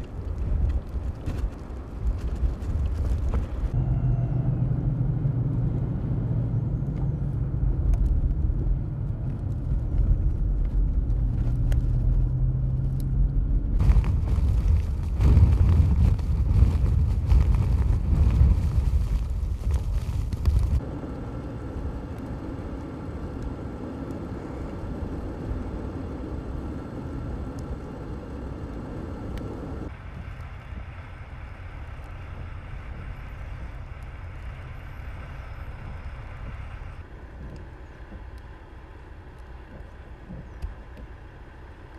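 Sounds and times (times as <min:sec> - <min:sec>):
vehicle engine and road noise: 0:00.0 - 0:41.9
wind blowing across road: 0:00.0 - 0:41.9.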